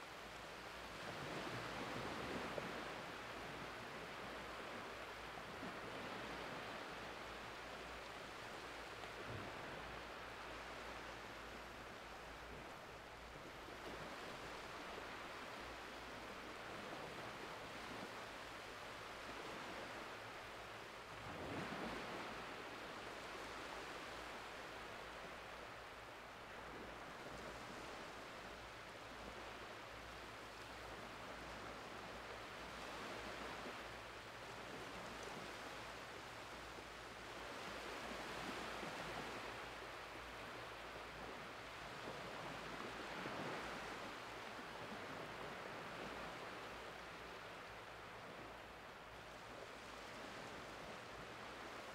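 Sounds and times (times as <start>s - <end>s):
gentle waves washing over sand: 0.0s - 51.9s.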